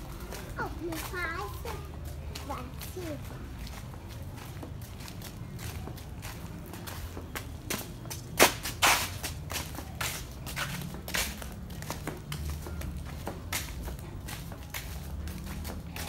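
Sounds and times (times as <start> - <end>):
footsteps on concrete: 0.0 - 16.0.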